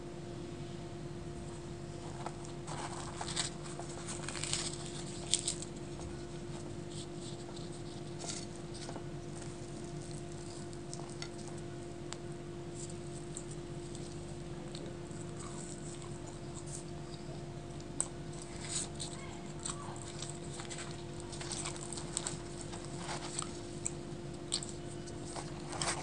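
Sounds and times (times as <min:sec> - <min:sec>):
steady hum: 0:00.0 - 0:26.0
crisp bread crackling when torn: 0:01.9 - 0:26.0
small handling ticks: 0:02.0 - 0:11.6, 0:17.8 - 0:26.0.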